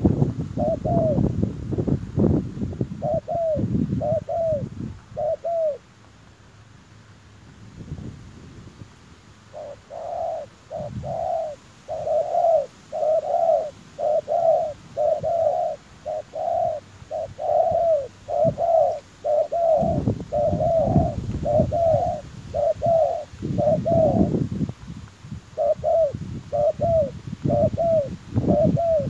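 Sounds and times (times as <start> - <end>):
doves cooing: 0.0 - 1.4, 2.9 - 5.9, 9.4 - 24.4, 25.4 - 29.0.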